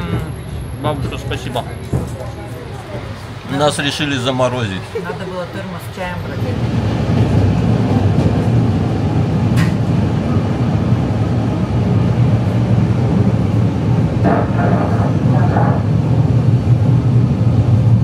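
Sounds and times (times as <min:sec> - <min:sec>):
train car running rumble: 0:00.0 - 0:18.0.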